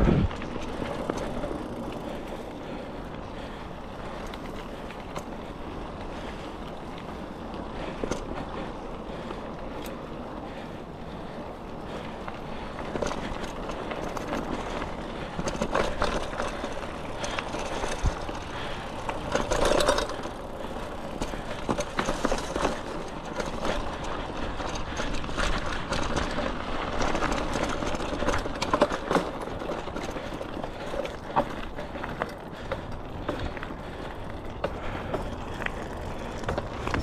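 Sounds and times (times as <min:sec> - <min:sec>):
wind rumble on microphone: 0:00.0 - 0:01.8
bike tyres on dirt and gravel: 0:00.0 - 0:37.0
bike knocks and rattles: 0:12.6 - 0:37.0.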